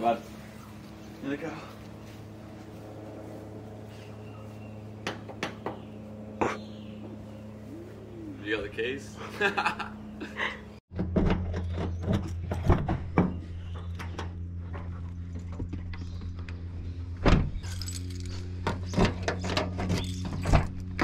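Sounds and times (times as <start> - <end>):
low hum: 0.0 - 21.0
keys jangling: 17.6 - 18.5.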